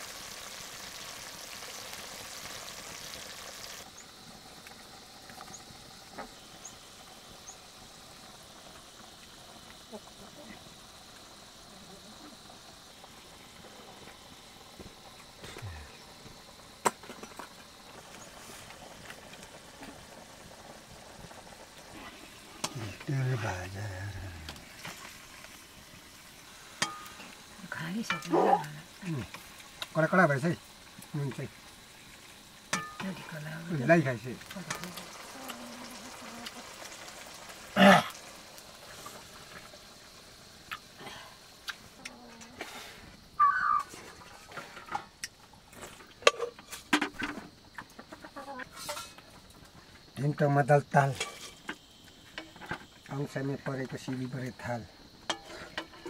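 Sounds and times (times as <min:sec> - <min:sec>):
wok boiling: 0:00.0 - 0:56.0
wood fire popping and cracking: 0:12.2 - 0:42.0.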